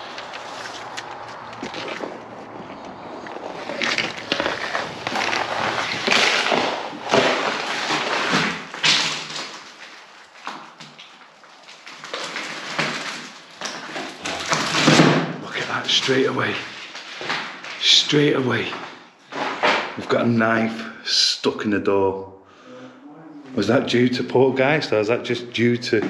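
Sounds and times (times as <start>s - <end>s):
footsteps crunching over debris: 0.0s - 20.0s
rustling and scraping: 0.0s - 20.1s.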